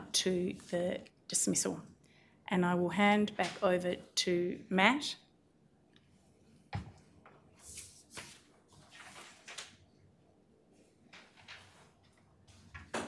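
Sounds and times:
rustling and shuffling: 6.8 - 9.8, 10.7 - 13.0.

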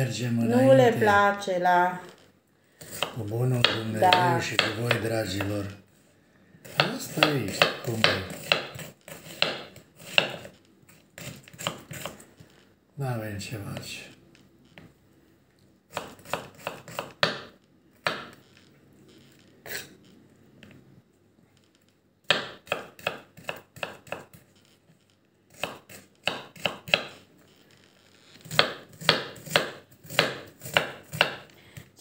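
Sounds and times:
knife chopping on wooden board: 2.8 - 5.7, 6.6 - 10.5, 11.2 - 12.2, 15.9 - 18.4, 22.2 - 24.4, 25.5 - 27.2, 28.4 - 31.5.

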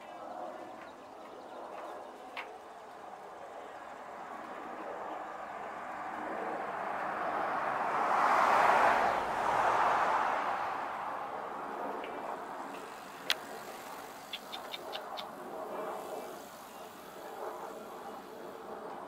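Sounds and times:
vehicle passing on road: 4.2 - 19.0.

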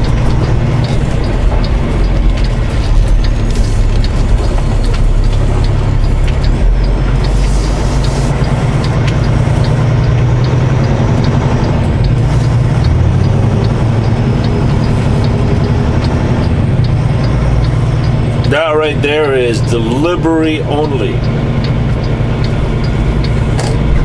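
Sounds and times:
diesel truck engine drone: 0.0 - 24.0
faint regular ticking: 0.0 - 24.0.

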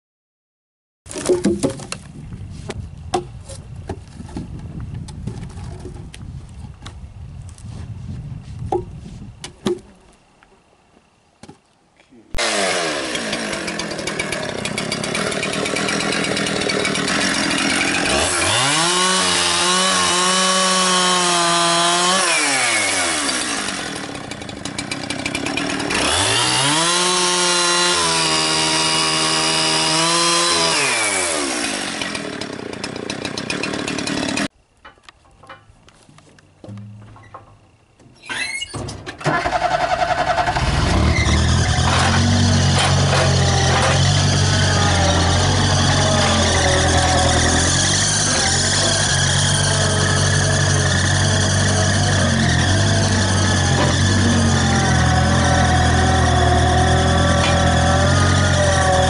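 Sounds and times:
sharp knocks: 8.7 - 9.9
chainsaw cutting logs: 12.4 - 34.5, 39.2 - 59.0.

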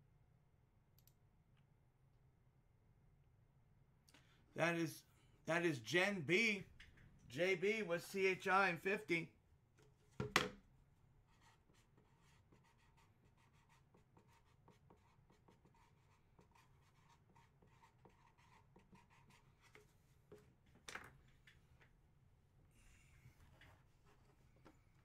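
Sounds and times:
objects handled on a table: 9.8 - 10.6.

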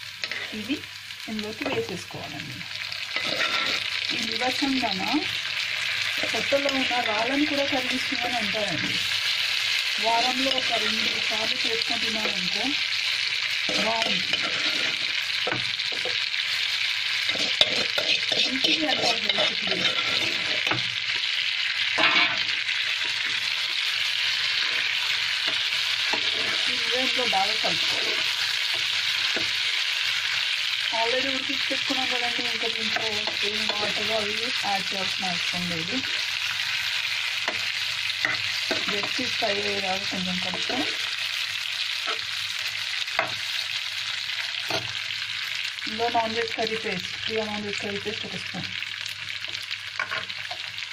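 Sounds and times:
food sizzling in oil: 0.0 - 50.9
spatula scraping a pan: 0.2 - 0.6, 3.0 - 4.0, 13.6 - 16.3, 17.2 - 21.2, 22.0 - 23.5, 24.3 - 29.7, 37.4 - 39.3.

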